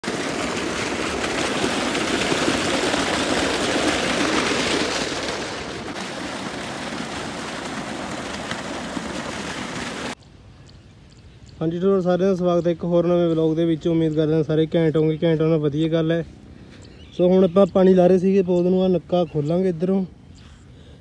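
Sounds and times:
water gushing and splashing: 0.0 - 10.2.

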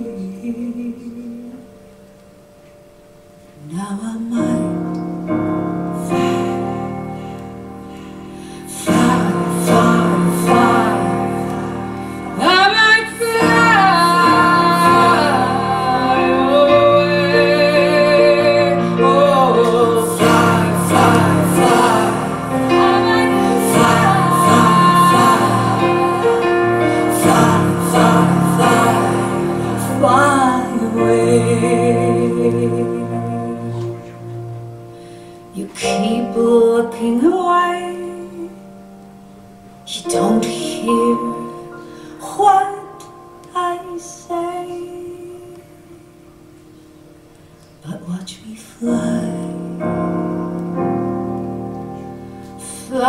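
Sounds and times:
song with female vocal on loudspeakers: 8.6 - 34.0.

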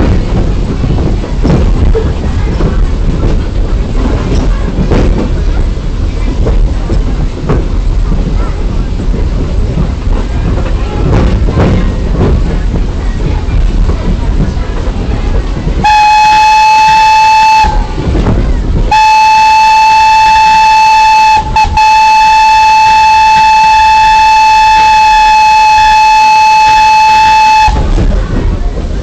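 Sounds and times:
low rumbling: 0.0 - 29.0
train whistle blowing: 15.8 - 18.0, 18.9 - 28.0.

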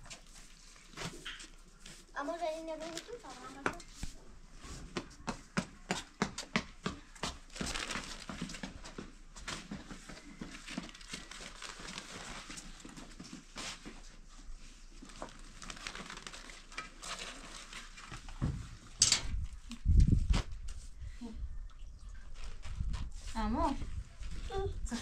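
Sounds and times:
flatbread crackling and rustling: 7.5 - 18.5.

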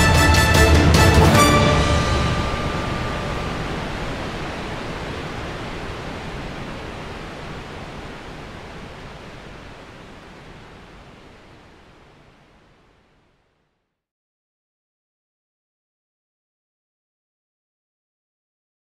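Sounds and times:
waterfall roaring: 0.0 - 13.2.

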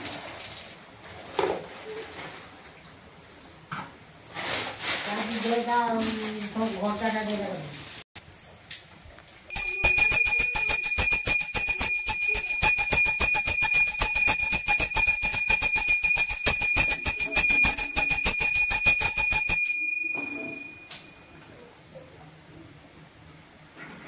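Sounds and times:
hand bell rung rapidly: 9.5 - 21.0.

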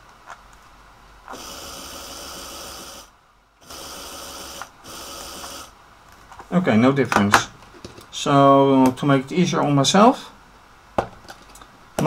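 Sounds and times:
small electric motor running: 1.3 - 5.7.

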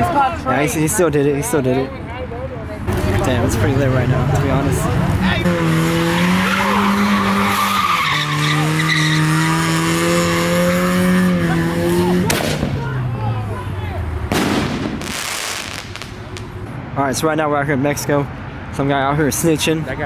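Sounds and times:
car engine revving high: 4.6 - 12.8
tyres squealing: 5.5 - 9.7
sharp bang: 14.3 - 16.5
firework bursts crackling: 14.3 - 16.6.

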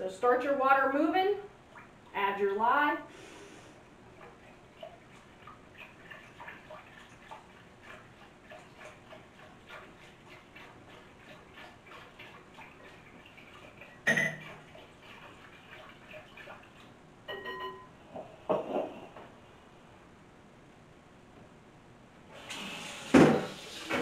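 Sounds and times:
ringing glass clink: 17.3 - 17.9.

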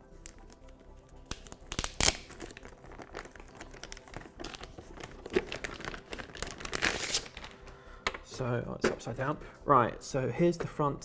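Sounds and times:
plastic bag crinkling: 2.0 - 7.6.

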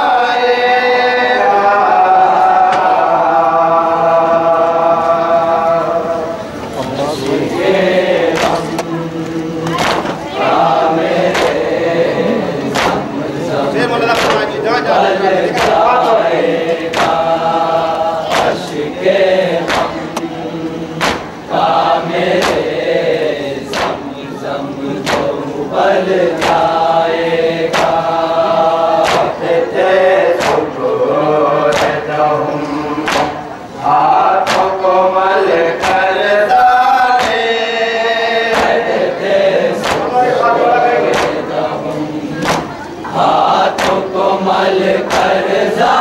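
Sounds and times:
men chanting together: 0.0 - 46.0
hands slapping chest in unison: 8.3 - 8.9, 9.6 - 10.2, 11.3 - 11.6, 12.7 - 13.1, 14.1 - 14.4, 16.9 - 17.2, 18.3 - 18.8, 19.6 - 20.3, 21.0 - 21.3, 22.4 - 22.7, 23.7 - 24.0, 25.0 - 25.3, 26.4 - 26.6, 27.7 - 28.0, 29.0 - 29.3, 30.4 - 30.7, 31.7 - 32.0, 33.0 - 33.4, 34.4 - 34.7, 37.2 - 37.4, 38.5 - 38.9, 39.8 - 40.1, 41.1 - 41.4, 42.4 - 42.7, 43.7 - 44.1.

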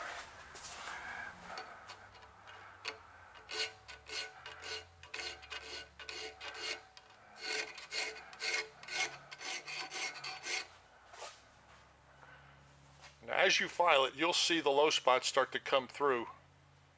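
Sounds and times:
hand file rasping on metal: 1.4 - 10.8.

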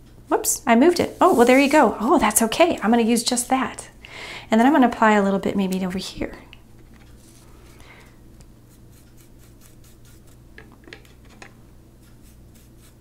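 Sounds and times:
applicator scratching on paper: 8.7 - 10.4.

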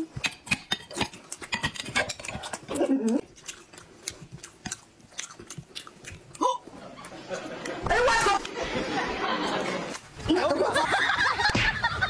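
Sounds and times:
wet chewing smacks: 0.0 - 7.8
person humming mm: 2.7 - 3.3.

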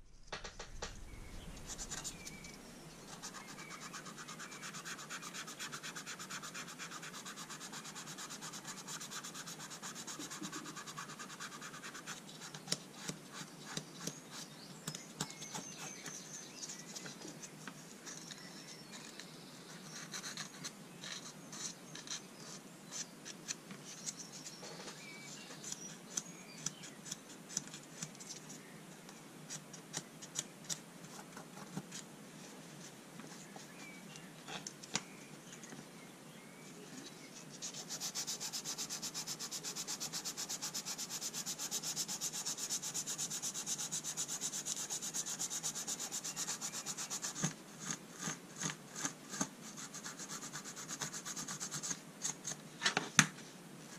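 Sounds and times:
scratchy rubbing on brass: 37.6 - 48.4.

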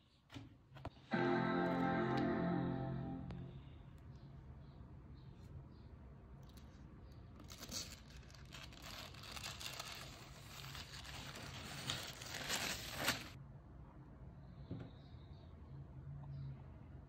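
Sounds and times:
paper crinkling and tearing: 7.4 - 13.4.

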